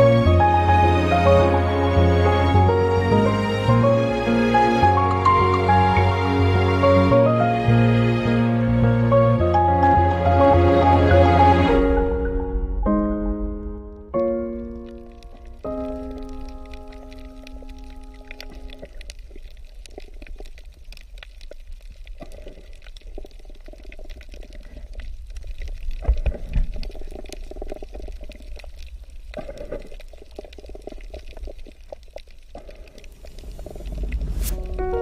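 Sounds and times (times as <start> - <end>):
crackle of tiny clicks: 13.9 - 35.0
muffled underwater movement: 14.0 - 35.0.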